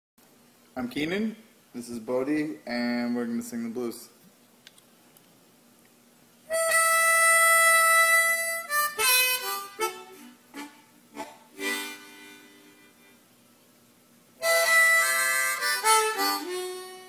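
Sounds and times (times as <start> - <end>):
blues harmonica playing: 6.5 - 13.2, 14.4 - 17.0.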